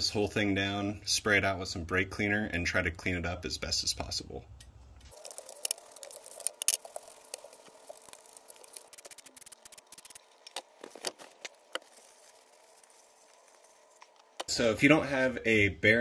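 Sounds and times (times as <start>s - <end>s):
wire brush scrubbing metal hub: 5.2s - 10.4s.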